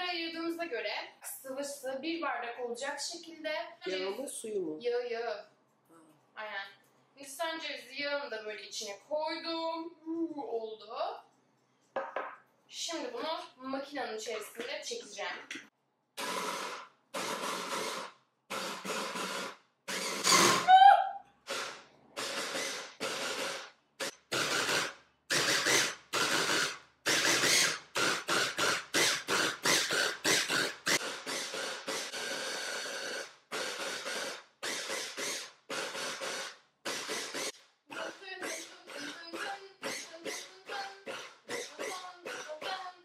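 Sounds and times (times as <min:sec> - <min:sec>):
hand blender chopper pulsing: 0:16.2 - 0:20.7, 0:21.5 - 0:43.0.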